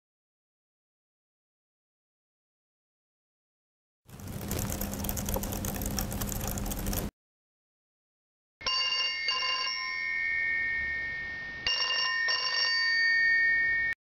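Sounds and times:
electronic telephone ringing: 0:08.6 - 0:10.2, 0:11.6 - 0:14.0.

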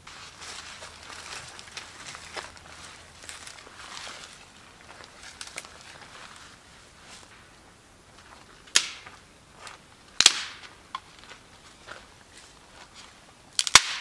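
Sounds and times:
footsteps on dry leaves: 0:00.0 - 0:14.0
dry sticks snapping: 0:05.0 - 0:05.8, 0:08.7 - 0:09.2, 0:10.2 - 0:11.4, 0:13.6 - 0:14.0.

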